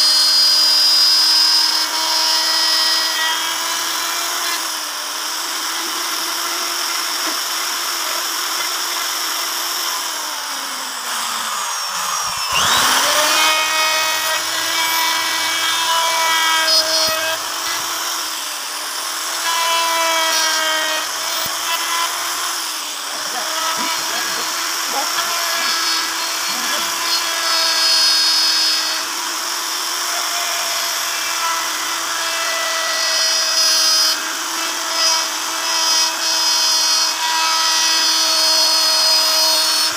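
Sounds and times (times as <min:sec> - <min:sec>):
electric router whining: 0:00.0 - 0:39.9.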